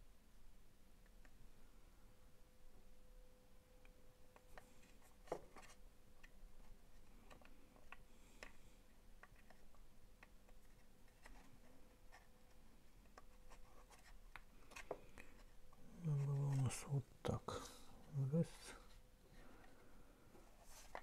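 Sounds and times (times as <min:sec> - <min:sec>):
rubbing of plastic parts: 0:04.4 - 0:16.9, 0:18.8 - 0:21.0.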